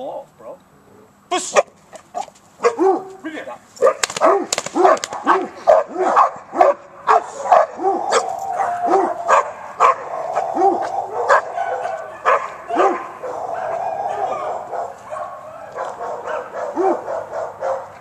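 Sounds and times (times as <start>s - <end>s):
dog barking: 1.6s - 3.2s, 3.8s - 18.0s
dog whining: 7.2s - 17.3s.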